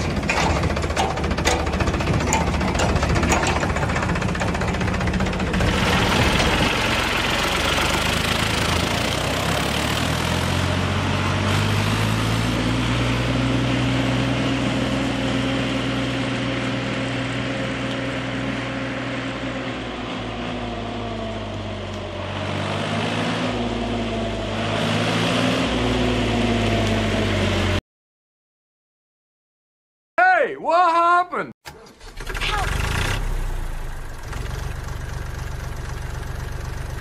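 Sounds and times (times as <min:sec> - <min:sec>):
tractor engine idling: 0:00.0 - 0:10.0, 0:31.7 - 0:37.0.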